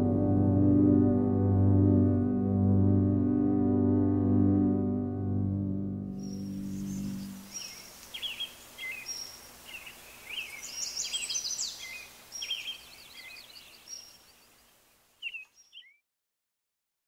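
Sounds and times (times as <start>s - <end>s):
faint outdoor hiss: 6.1s - 16.0s
small birds chirping: 6.2s - 16.0s.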